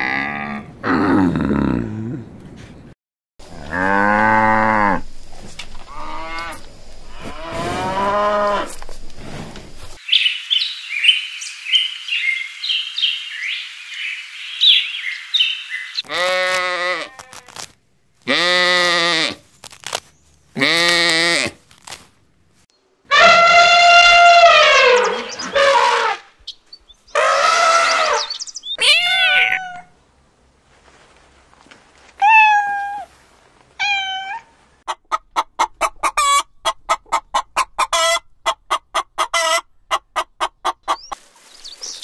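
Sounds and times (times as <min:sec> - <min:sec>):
steady hiss: 0:04.8 - 0:14.0
bird chirping: 0:10.0 - 0:16.1, 0:24.8 - 0:25.7, 0:26.4 - 0:28.8, 0:40.8 - 0:42.0
lamb bleating: 0:16.1 - 0:17.5
camel calling: 0:23.1 - 0:26.3, 0:27.1 - 0:29.9.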